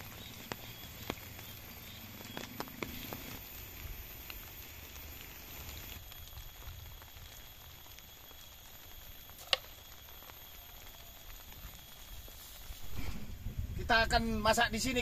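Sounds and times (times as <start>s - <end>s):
low rumble: 12.7s - 14.4s.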